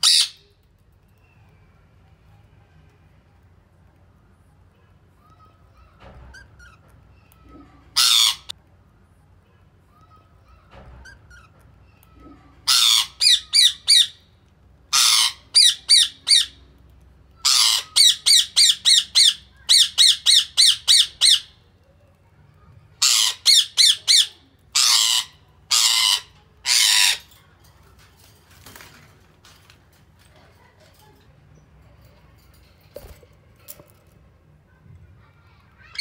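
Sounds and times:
budgerigars squawking and chirping: 8.0s - 8.5s, 14.9s - 16.5s, 17.5s - 21.5s, 23.0s - 27.2s.

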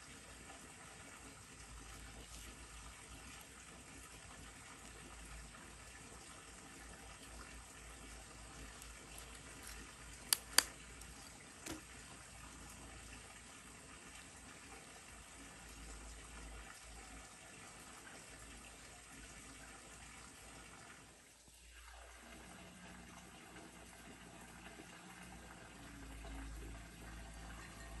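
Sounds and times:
sharp clicks: 9.3s - 11.8s.

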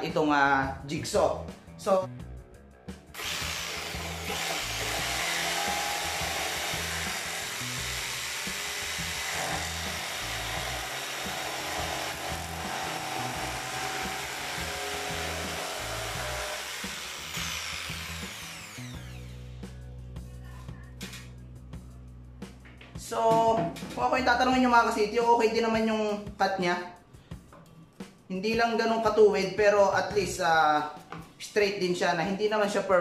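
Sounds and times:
jigsaw cutting wood: 3.2s - 19.5s.

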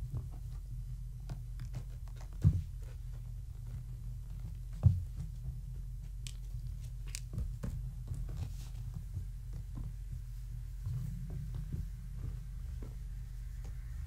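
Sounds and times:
kittens scuffling and tapping: 0.0s - 13.0s
steady low hum: 0.0s - 14.0s
loud thump: 10.8s - 13.2s.

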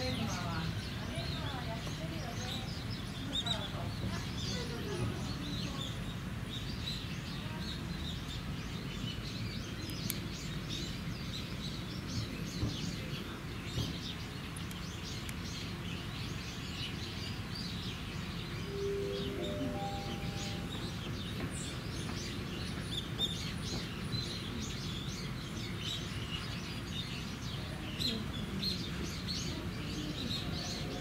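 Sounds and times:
small birds chirping: 0.0s - 31.0s
steady tone: 18.6s - 21.2s.

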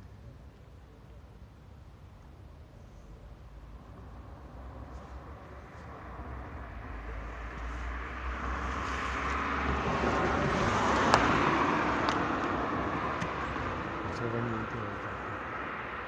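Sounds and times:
road vehicle passing: 3.4s - 16.0s.

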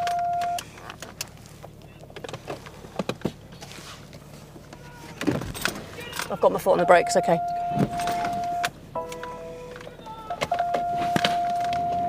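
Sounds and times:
electronic beep: 0.0s - 0.6s, 6.8s - 12.0s
idling car hum: 0.0s - 12.0s.

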